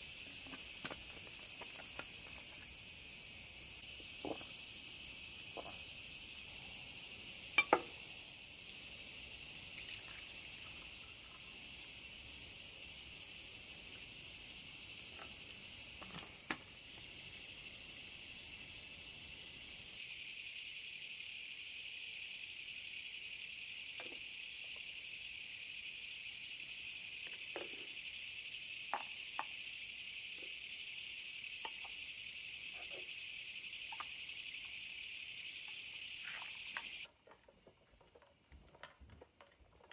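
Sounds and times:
insects chirring: 0.0 - 39.9
glassware and dishes clinking: 7.6 - 7.9.

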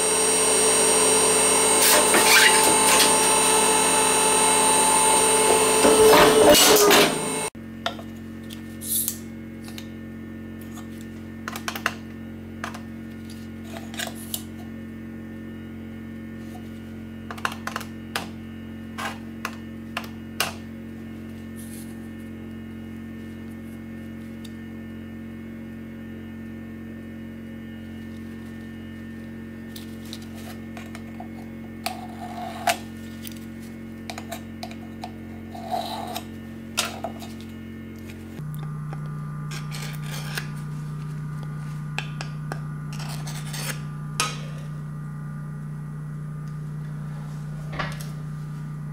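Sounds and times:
steady electrical hum: 7.1 - 48.9.

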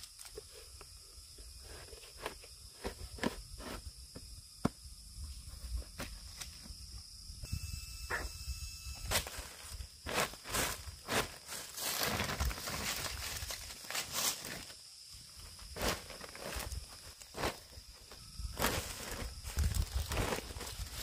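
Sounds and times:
high-pitched drone: 7.4 - 9.7
plastic sack rustling on leaves: 9.1 - 14.8, 15.4 - 21.0
dry leaves and bark crackling: 9.1 - 21.0.

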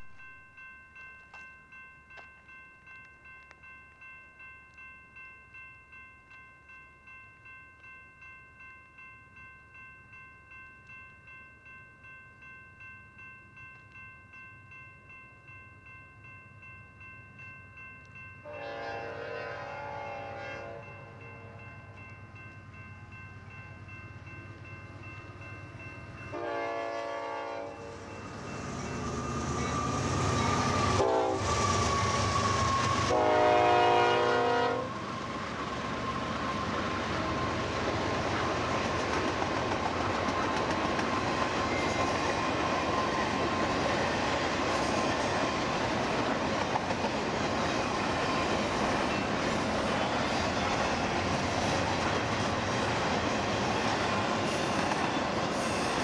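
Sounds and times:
crossing warning bell ringing: 0.0 - 56.0
low train rumble: 8.2 - 56.0
train horn blasts: 18.4 - 21.6, 26.3 - 28.0, 30.5 - 35.0.

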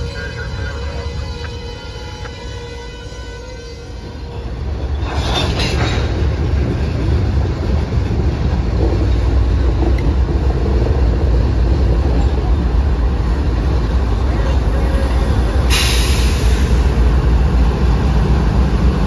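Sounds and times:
rail car clanks: 0.0 - 3.3, 3.9 - 19.0
freight train rumble: 0.0 - 19.0.

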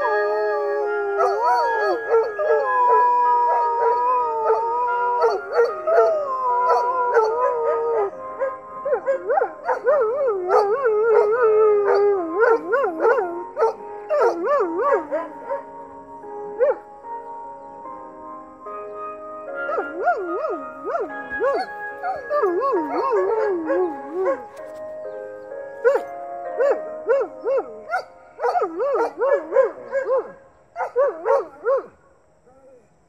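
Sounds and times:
dog howling: 0.0 - 15.7.

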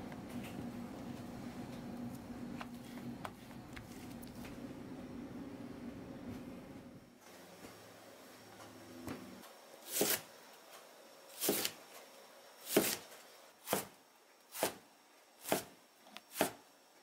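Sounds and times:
knife slicing cauliflower: 9.9 - 10.3, 11.4 - 11.8, 12.6 - 13.0, 13.6 - 14.8, 15.4 - 15.7, 16.3 - 16.6.

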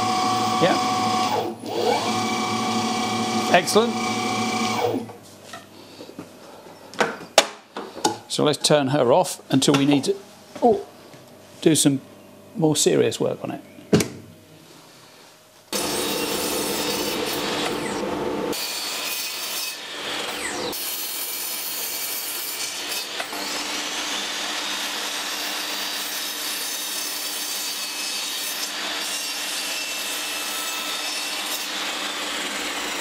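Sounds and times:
mitre saw cutting wood: 0.0 - 5.1, 15.7 - 33.0.

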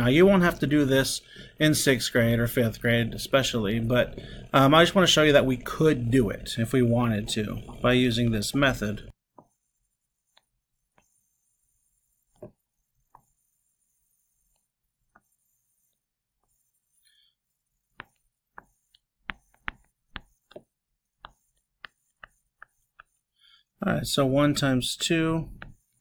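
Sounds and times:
pen tapping on drawing tablet: 17.9 - 23.2, 25.6 - 25.8.

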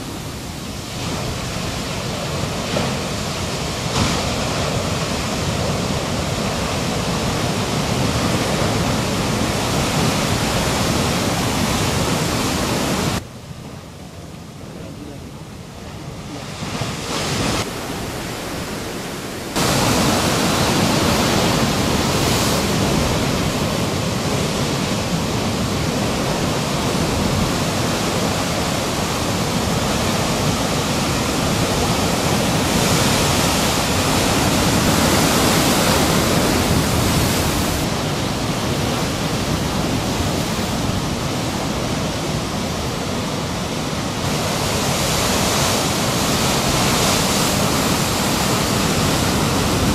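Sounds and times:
ocean surf roar: 0.0 - 49.9.

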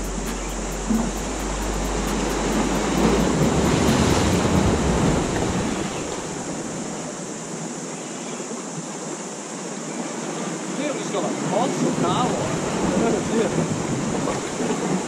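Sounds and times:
wind buffeting microphone: 0.0 - 7.6, 11.9 - 15.0
surf washing over rocks: 0.0 - 15.0.

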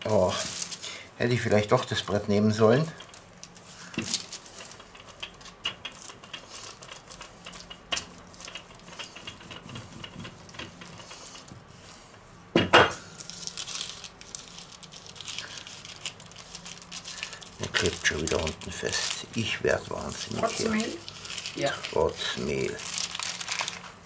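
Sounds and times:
paper rustle: 0.1 - 0.9, 2.0 - 12.0, 13.1 - 24.0
rolling pin rolling dough: 3.9 - 12.1.

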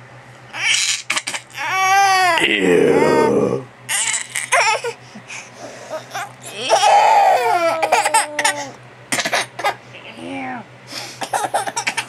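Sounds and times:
baby laughing: 5.9 - 9.8.

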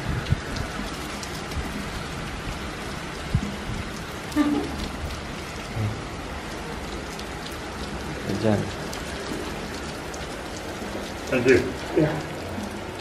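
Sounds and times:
heavy rain on stone and grass: 0.0 - 13.0.

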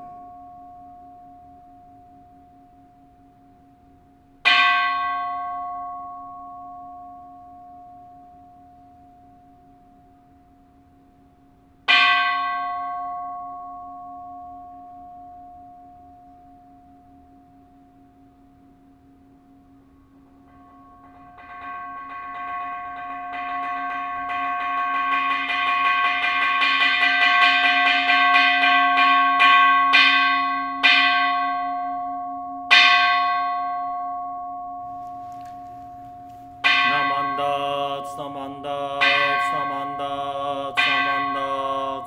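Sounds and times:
altar bell ringing: 0.0 - 2.8, 4.4 - 10.0, 20.4 - 42.0.

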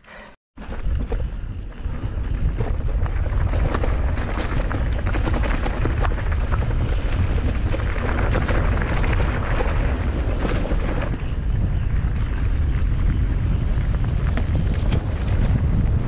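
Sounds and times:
bike rattling on rough ground: 0.6 - 16.0
wind rumbling on microphone: 0.6 - 16.0.

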